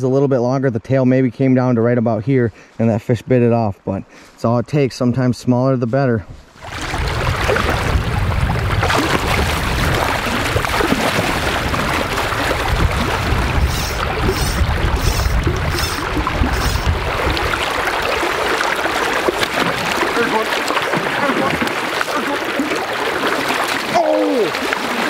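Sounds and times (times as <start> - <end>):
river water rushing: 6.6 - 25.0
splashing hiss: 13.6 - 17.0.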